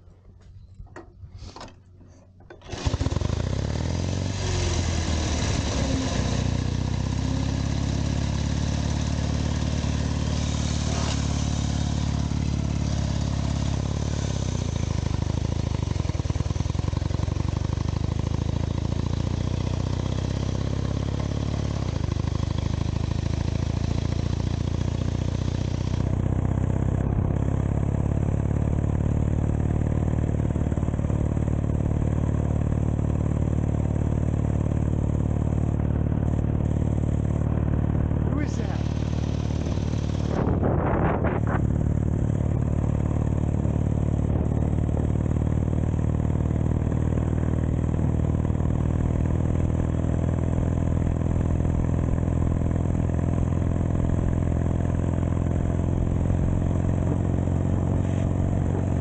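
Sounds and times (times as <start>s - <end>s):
motorcycle engine running: 0.0s - 59.0s
clicks: 0.3s - 2.7s.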